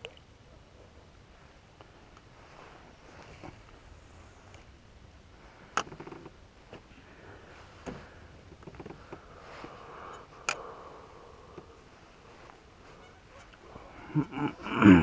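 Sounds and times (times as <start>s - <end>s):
faint geese honking: 9.0s - 15.0s.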